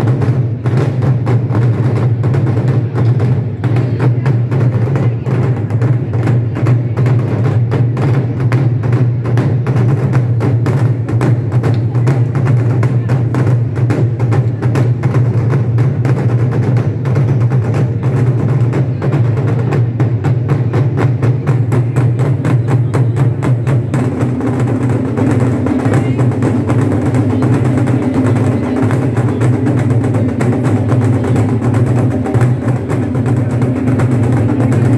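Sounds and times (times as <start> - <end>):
taiko drums playing: 0.0 - 34.9.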